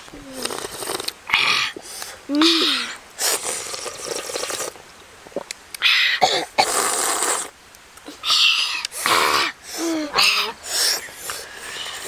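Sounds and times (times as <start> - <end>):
slurping broth: 3.2 - 4.8.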